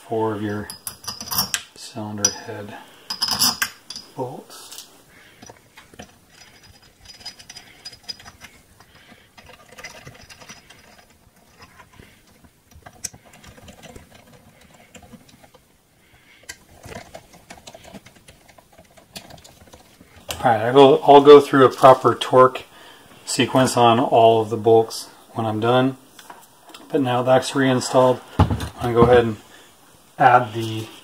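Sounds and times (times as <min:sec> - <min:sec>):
metal bolts clicking and rattling: 0:00.6 - 0:02.4, 0:03.1 - 0:04.2, 0:05.4 - 0:15.7, 0:16.4 - 0:20.4.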